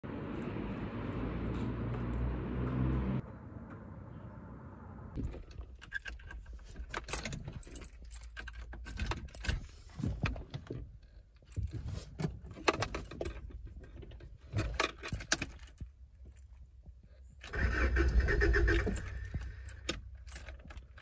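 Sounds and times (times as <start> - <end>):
steady outdoor rumble: 0.0 - 11.8
car keys jangling: 5.2 - 10.6, 11.2 - 16.7, 18.5 - 21.0.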